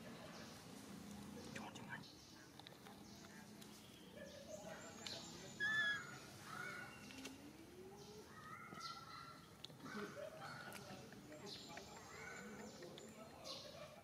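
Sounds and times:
high-pitched chirping calls: 5.2 - 7.2.

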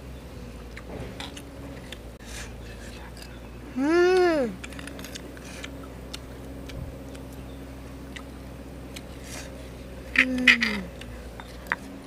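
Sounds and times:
boy humming: 3.7 - 4.6, 10.1 - 11.0
crisp crunching of fruit: 4.2 - 7.4.

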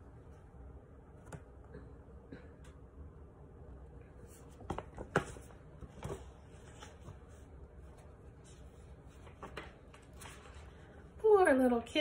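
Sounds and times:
paper rustling: 4.2 - 11.0.

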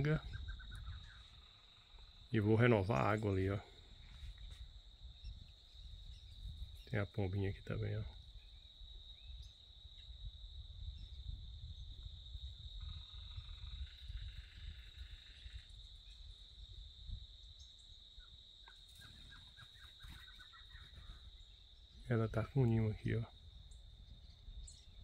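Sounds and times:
bird calls: 0.0 - 9.6, 17.5 - 25.0
high-pitched insect drone: 12.4 - 16.4.

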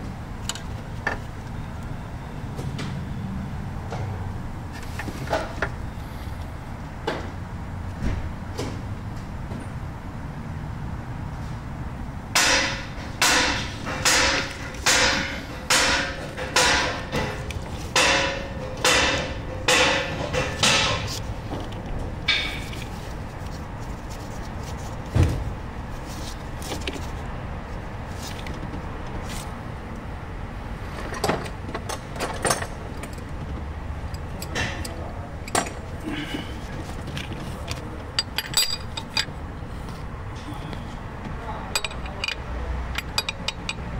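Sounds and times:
hand tool striking metal: 12.4 - 21.2.

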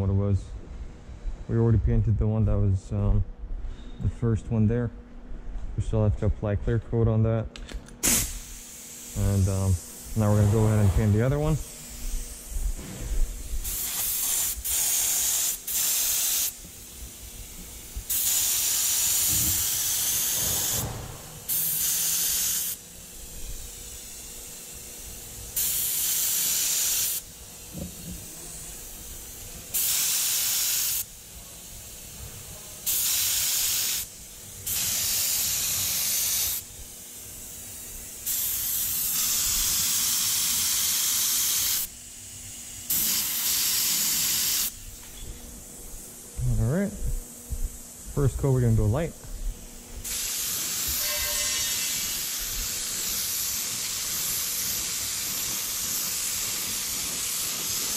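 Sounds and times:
aerosol can spraying: 8.0 - 10.9, 13.6 - 24.3, 25.6 - 31.1, 32.8 - 36.7, 37.5 - 41.9, 42.9 - 44.8, 50.0 - 57.9.

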